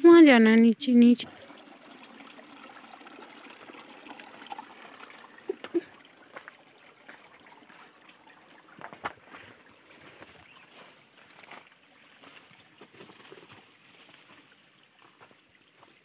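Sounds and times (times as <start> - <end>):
stream trickling over stones: 0.1 - 16.0
footsteps on rocks: 8.7 - 14.5.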